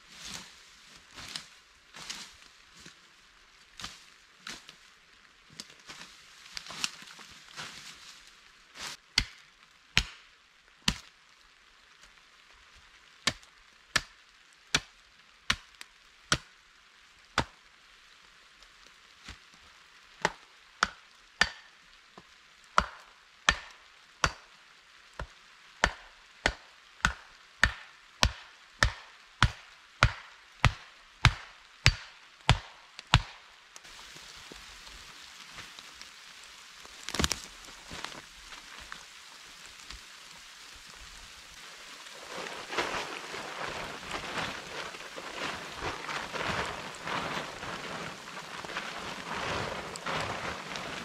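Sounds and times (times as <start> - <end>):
axe chopping wood: 9.2 - 9.4, 10.0 - 10.2, 20.2 - 21.7, 22.8 - 24.4, 25.2 - 33.4, 37.0 - 37.5.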